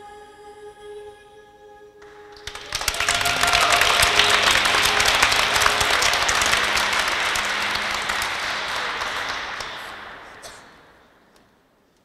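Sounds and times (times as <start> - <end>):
crowd applauding: 2.0 - 11.6.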